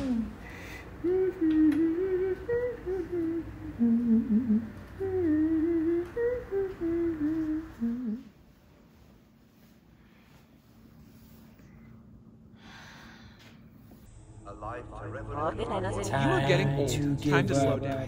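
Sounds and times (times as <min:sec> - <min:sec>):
woman humming: 0:00.0 - 0:08.4.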